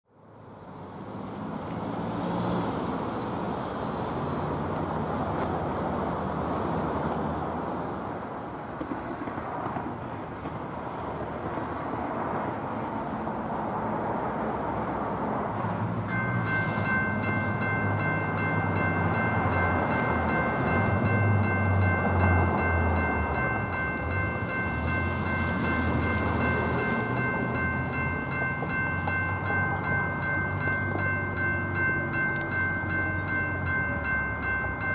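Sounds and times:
road traffic noise: 0:00.0 - 0:34.9
electronic crossing bell ringing: 0:16.0 - 0:34.9.

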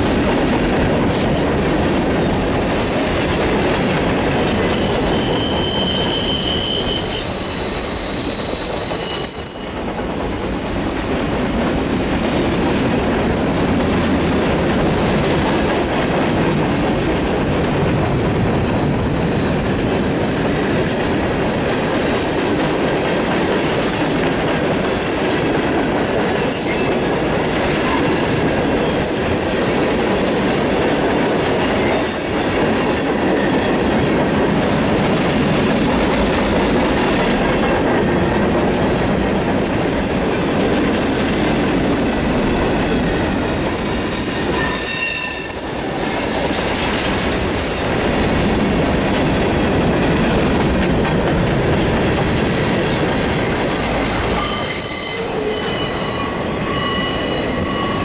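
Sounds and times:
train wheels rumbling on rails: 0:00.0 - 0:58.0
wheel squeals: 0:01.8 - 0:14.7, 0:15.7 - 0:30.8, 0:38.6 - 0:46.5, 0:52.0 - 0:58.0.

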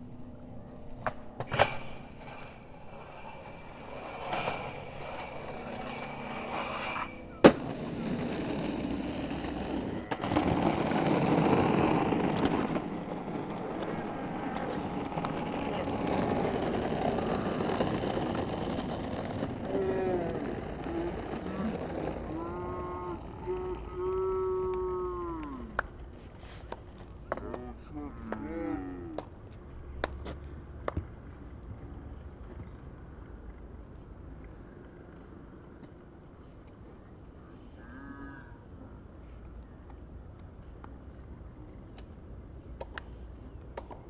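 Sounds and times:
steady rough noise: 0:00.0 - 0:26.0
skateboard slam: 0:01.0 - 0:03.1, 0:07.4 - 0:19.7
skateboard grinding metal rail: 0:01.0 - 0:24.0
skateboard clacks: 0:07.4 - 0:22.4.

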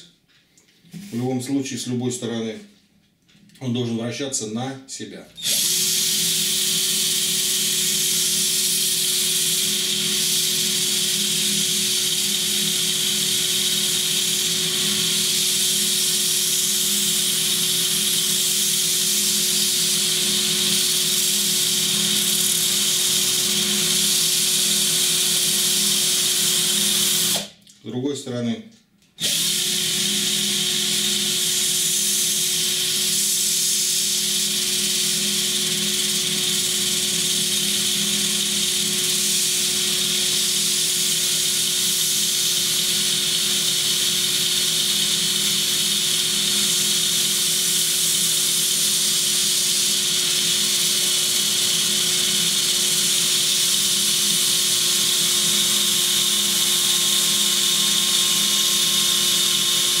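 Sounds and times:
drill motor whine: 0:05.4 - 0:27.5, 0:29.2 - 1:00.0.

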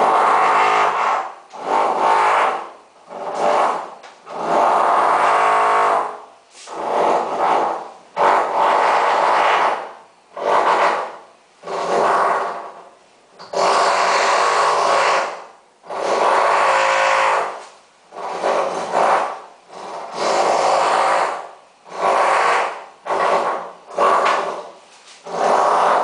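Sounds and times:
power tool grinding metal: 0:25.3 - 0:26.0.

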